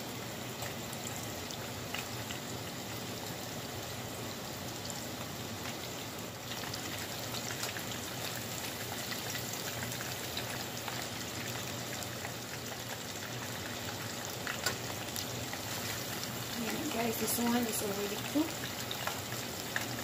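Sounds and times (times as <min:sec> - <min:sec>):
shrimp sizzling in hot oil: 0:00.0 - 0:20.0
oil crackles and pops: 0:00.5 - 0:03.9, 0:04.7 - 0:20.0.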